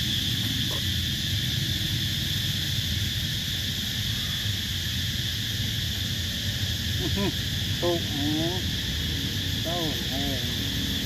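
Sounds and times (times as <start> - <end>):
insects buzzing: 0.0 - 11.0.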